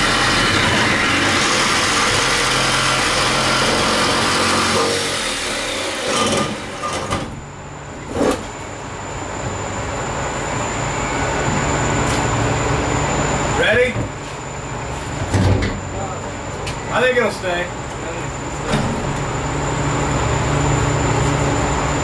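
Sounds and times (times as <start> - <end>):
jigsaw cutting steel: 0.0 - 7.2.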